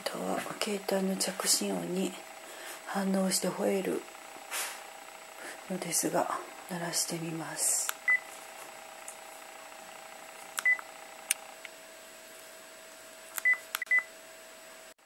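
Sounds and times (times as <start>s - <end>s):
phone keypad beeps: 10.6s - 10.8s, 13.4s - 14.1s.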